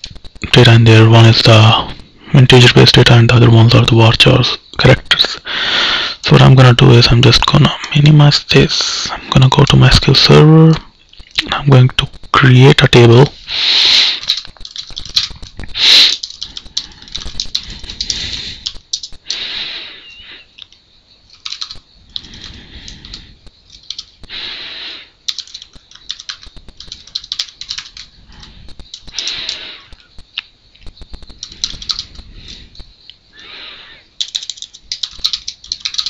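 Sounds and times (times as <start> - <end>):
faint high whine: 0.0 - 36.0
keyboard typing clicks: 14.2 - 19.4, 20.6 - 24.4, 25.3 - 32.9, 34.2 - 36.0.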